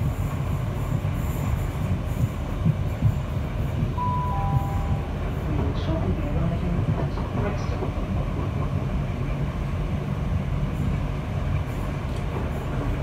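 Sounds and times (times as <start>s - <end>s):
train wheels rumbling on rail: 0.0s - 13.0s
high two-note tone: 4.0s - 5.1s.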